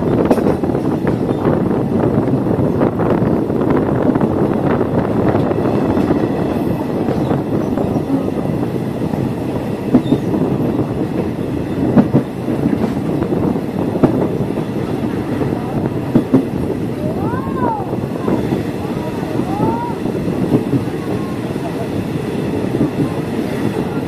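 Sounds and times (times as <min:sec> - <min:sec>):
train wheels clacking: 0:00.0 - 0:01.6, 0:04.4 - 0:17.0
train wheels rumbling on rails: 0:00.0 - 0:24.0.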